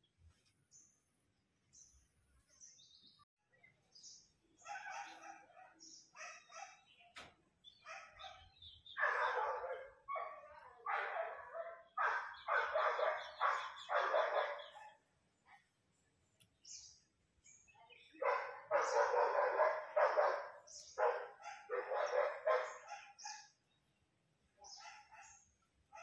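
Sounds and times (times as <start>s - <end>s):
dog barking: 4.6s - 7.0s, 7.8s - 15.0s, 18.2s - 23.6s, 24.6s - 26.0s.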